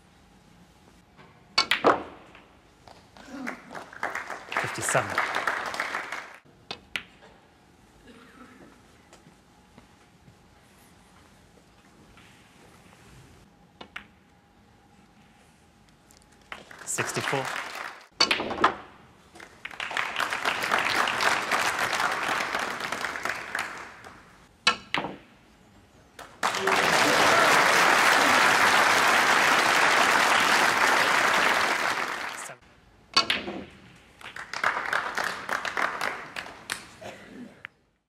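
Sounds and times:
crowd applauding: 3.4s - 6.4s, 16.6s - 18.1s, 19.4s - 24.2s, 26.4s - 32.6s, 34.3s - 36.8s.

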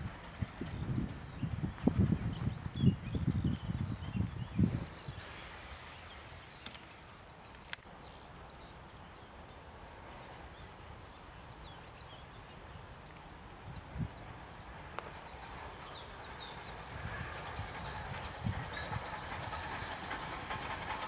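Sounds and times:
wind buffeting microphone: 0.0s - 6.5s, 8.6s - 21.0s
faint wind rush: 0.0s - 21.0s.

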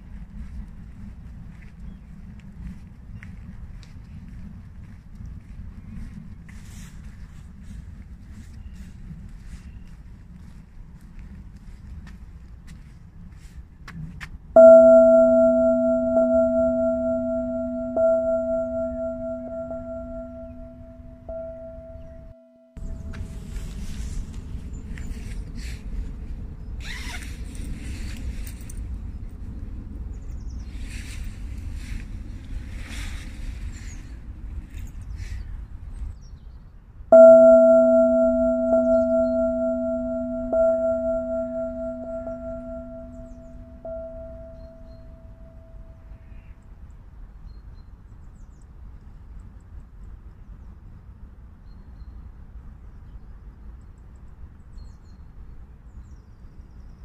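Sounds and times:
faint outdoor ambience: 0.0s - 57.0s
soft wind: 0.0s - 57.0s
singing bowl ringing: 14.6s - 23.4s, 37.1s - 46.0s.

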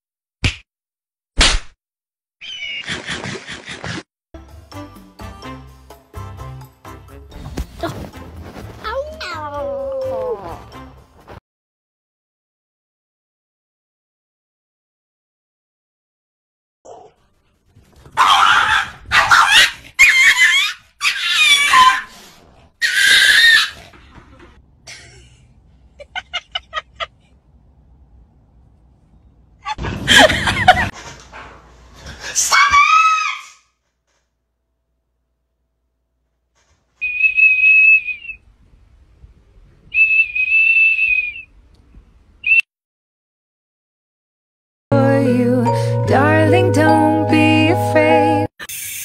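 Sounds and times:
shrill whistle blasts: 37.0s - 38.4s, 39.9s - 41.5s, 42.4s - 42.6s.

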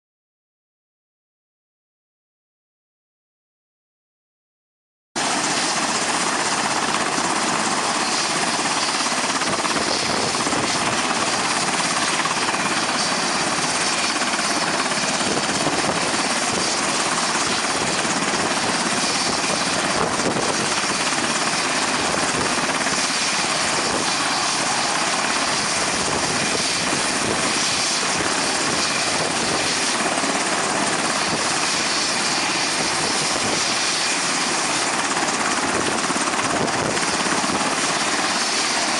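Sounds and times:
model helicopter rotor whirring: 5.2s - 38.9s.

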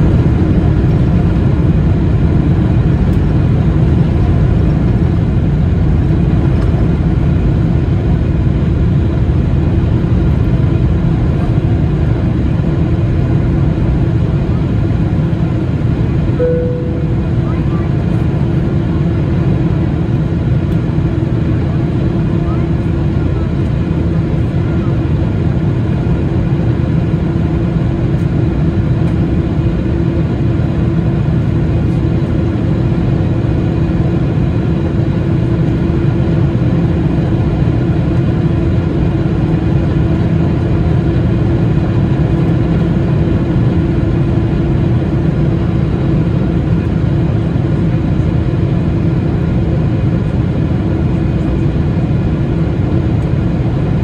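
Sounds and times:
steady hum: 0.0s - 22.6s
jet engine drone: 0.0s - 54.0s.

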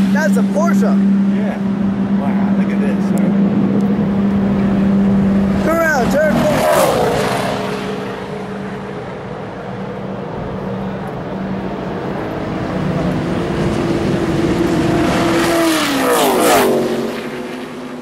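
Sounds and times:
racing car engines at high revs: 0.0s - 18.0s
racing car passing by: 0.0s - 18.0s.

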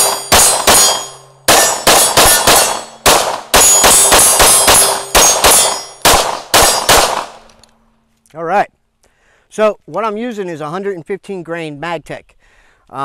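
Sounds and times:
pistol gunshots: 0.0s - 7.5s.

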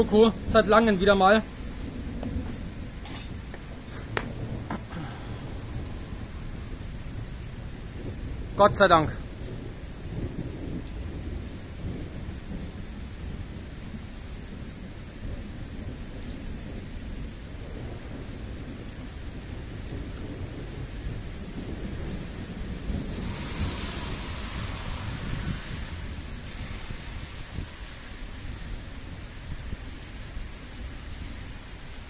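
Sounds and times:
thunder rumbling: 0.0s - 17.0s, 17.6s - 29.9s
light rain: 0.0s - 32.0s
hiss: 23.1s - 27.3s.

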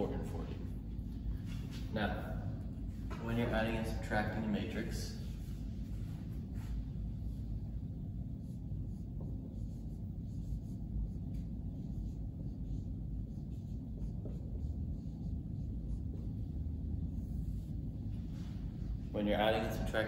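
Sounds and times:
marker writing on whiteboard: 4.8s - 19.0s.

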